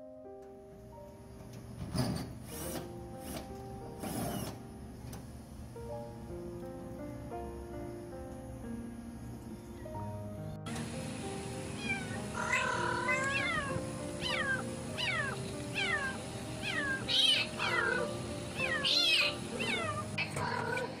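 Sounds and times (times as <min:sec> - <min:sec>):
background music: 0:02.5 - 0:21.0
kitten meowing: 0:11.8 - 0:20.9.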